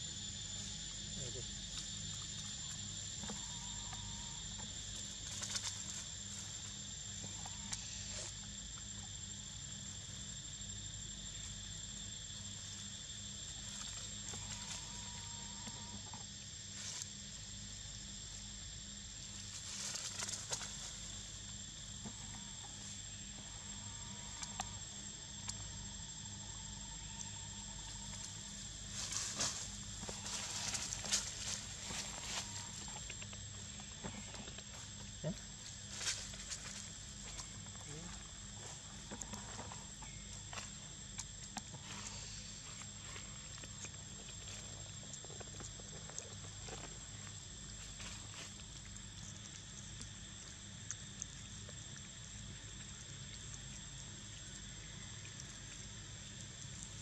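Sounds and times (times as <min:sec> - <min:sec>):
high-pitched insect chorus: 0:00.0 - 0:57.0
rustling dry leaves: 0:28.9 - 0:32.8.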